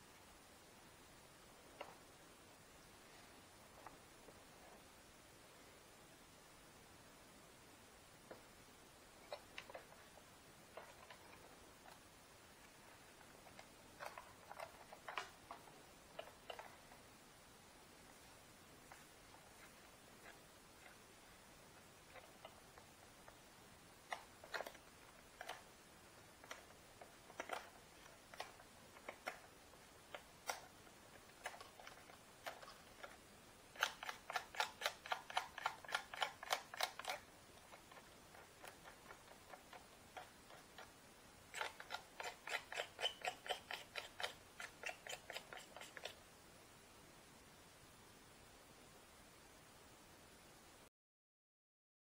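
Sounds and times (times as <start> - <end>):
hand tool scraping: 41.6 - 46.1.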